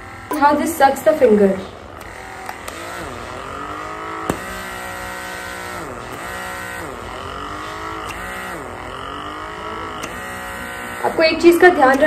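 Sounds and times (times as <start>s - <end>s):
suction device motor whine: 0.0s - 12.0s.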